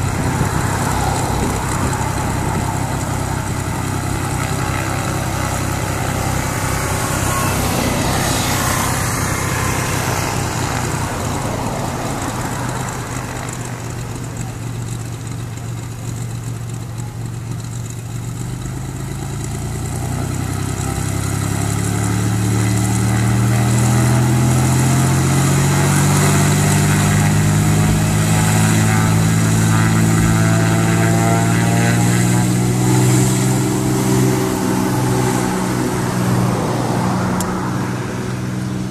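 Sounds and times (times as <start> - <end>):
propeller plane engine running: 0.0 - 38.9.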